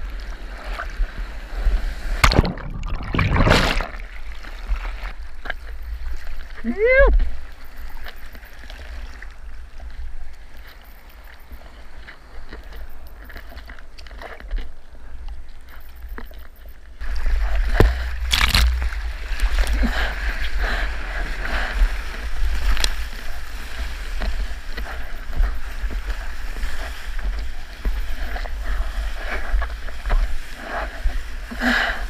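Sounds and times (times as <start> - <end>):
water rushing along surfboard: 0.0 - 10.8, 17.0 - 32.0
water splashes: 0.0 - 14.8, 17.0 - 31.7
wind rumble on microphone: 16.8 - 32.0.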